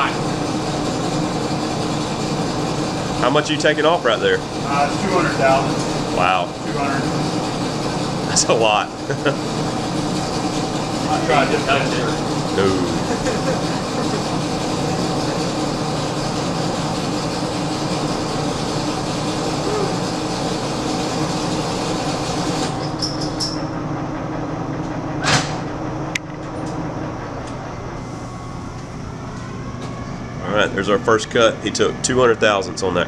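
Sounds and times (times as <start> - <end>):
lathe controls clacking: 0.0 - 23.8
lathe humming: 0.0 - 25.0.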